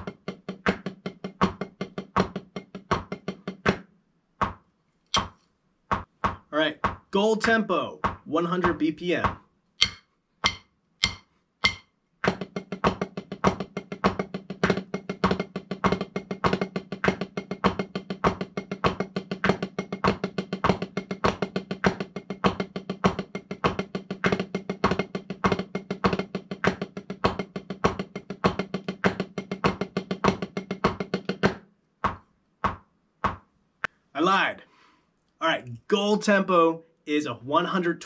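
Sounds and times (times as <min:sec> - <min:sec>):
metronome clicking: 0:09.8 - 0:11.8
drumsticks on practice pad: 0:09.8 - 0:12.4.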